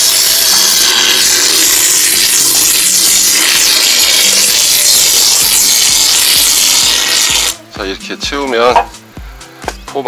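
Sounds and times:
spray foam hissing: 0.0 - 7.6.

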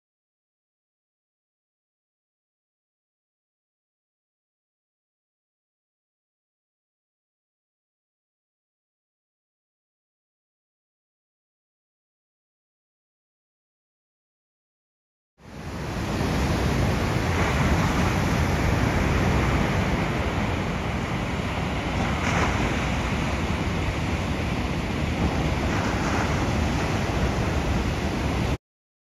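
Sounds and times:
ocean waves breaking: 15.4 - 28.6.

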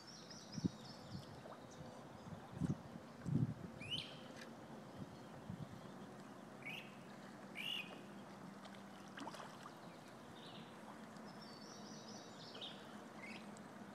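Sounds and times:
quiet outdoor background noise: 0.0 - 13.9
faint bird chirps: 7.6 - 8.0.

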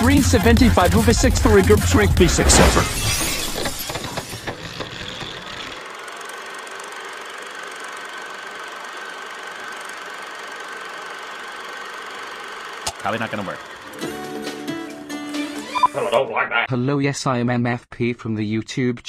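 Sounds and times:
film projector rattle: 3.2 - 14.1.

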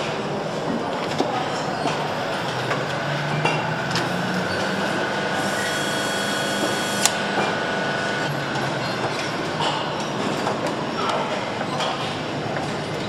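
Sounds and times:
factory machinery noise: 0.0 - 13.0
faint high whine: 2.4 - 9.5.

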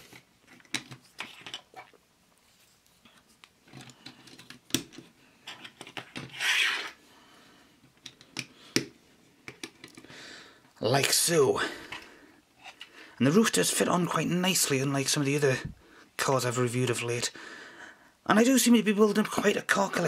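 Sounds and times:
plastic bricks clicking: 0.4 - 1.9, 8.0 - 10.1.

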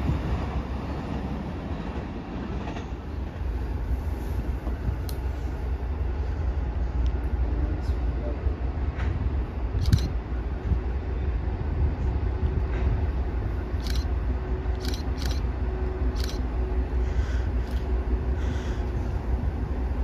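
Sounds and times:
train rumbling: 0.0 - 20.0.

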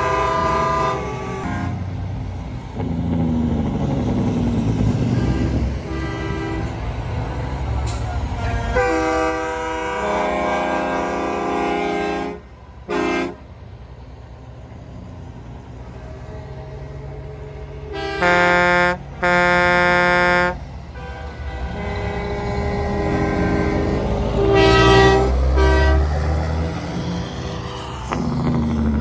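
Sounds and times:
truck air horn blasts: 0.0 - 1.9, 5.0 - 7.0, 7.8 - 13.5, 17.9 - 26.4
diesel truck engine rumbling: 0.0 - 29.0.

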